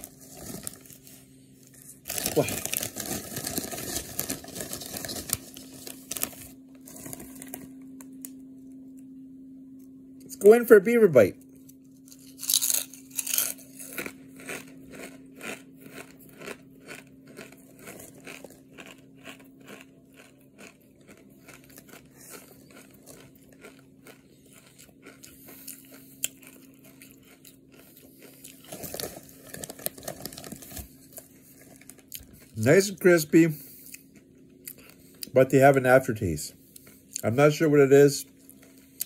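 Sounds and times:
chip bag rustling and crinkling: 0.0s - 8.0s, 12.0s - 33.3s
chewing crisp potato chips: 0.0s - 9.0s, 11.4s - 39.0s
faint steady low hum: 0.0s - 39.0s.

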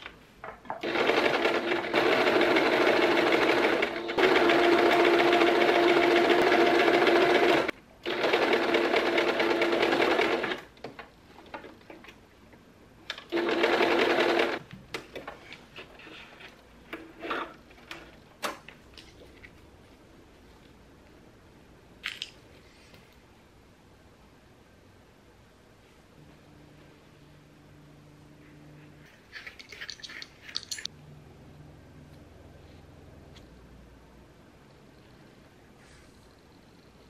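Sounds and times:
sewing machine stitching: 0.8s - 10.7s, 13.3s - 14.6s.

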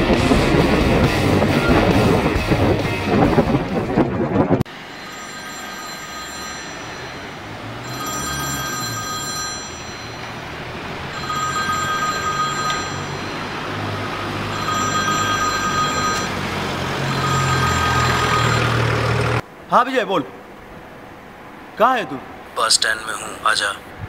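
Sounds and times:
mobile phone ringtone: 4.8s - 18.8s.

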